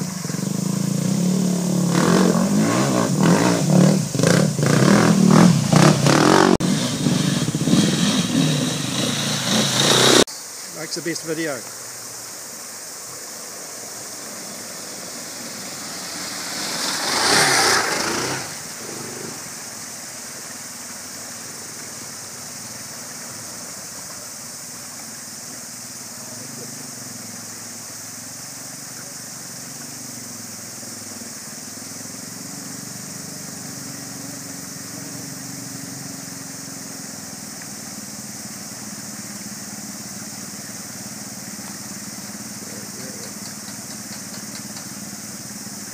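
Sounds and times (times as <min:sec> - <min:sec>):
motorcycle engines running: 0:00.0 - 0:10.3, 0:13.0 - 0:45.9
flowing water rushing: 0:08.7 - 0:32.3.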